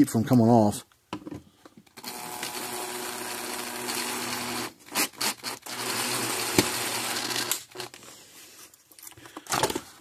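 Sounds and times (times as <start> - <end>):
cordless drill driving screw: 2.0 - 8.0
drill clicks: 2.0 - 8.0.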